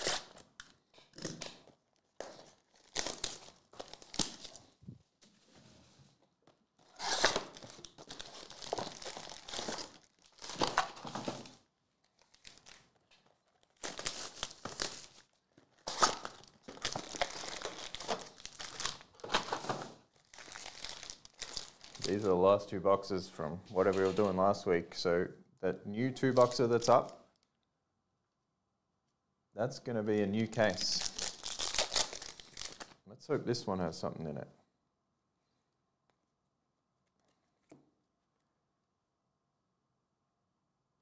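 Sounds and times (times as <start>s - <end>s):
plastic shrink wrap tearing: 0.0s - 0.4s, 6.8s - 11.1s, 12.0s - 19.4s, 20.2s - 22.2s, 30.7s - 33.0s
card packs being handled: 1.4s - 4.8s, 6.8s - 22.4s, 30.6s - 33.0s.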